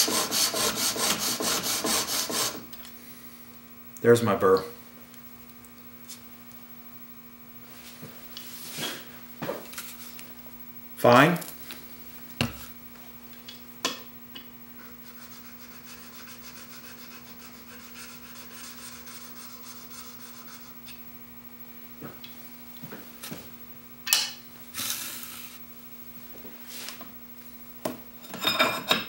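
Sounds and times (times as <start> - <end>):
brief hiss: 24.7 - 25.6.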